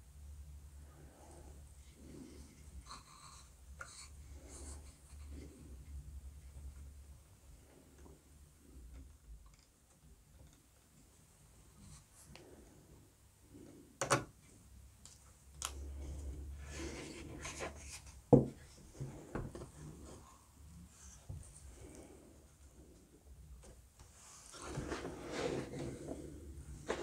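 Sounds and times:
wooden knock: 0:18.3 - 0:18.6
hands rubbing and shuffling: 0:24.0 - 0:27.0.

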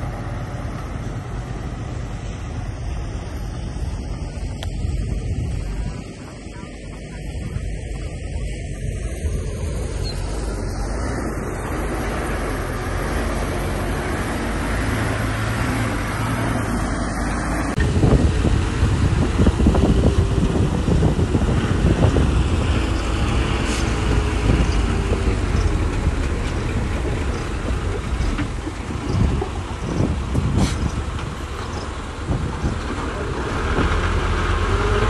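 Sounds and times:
heavy machinery engine rumble: 0:00.0 - 0:35.0
knocks and clatter: 0:23.6 - 0:34.2.

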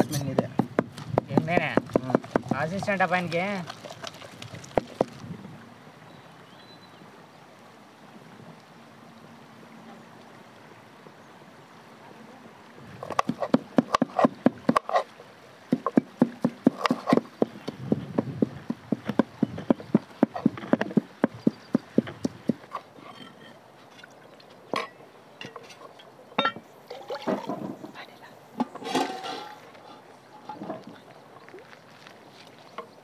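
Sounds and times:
knife chopping on wooden board: 0:15.7 - 0:17.5.

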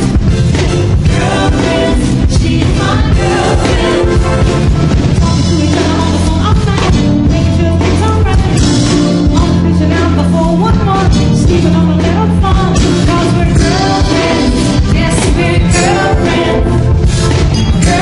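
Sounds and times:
bass line: 0:00.0 - 0:18.0
drum kit playing: 0:00.0 - 0:18.0
woman singing into microphone: 0:05.2 - 0:16.9.

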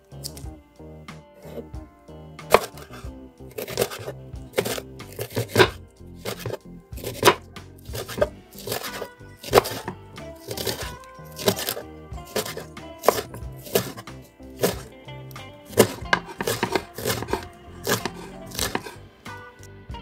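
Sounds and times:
background music: 0:00.0 - 0:20.0
knife chopping on wooden board: 0:02.5 - 0:14.9, 0:15.7 - 0:19.0.

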